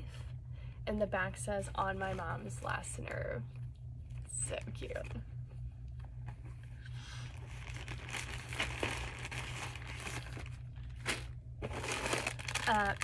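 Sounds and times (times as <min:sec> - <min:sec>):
plastic packaging crinkling: 0:07.2 - 0:13.0.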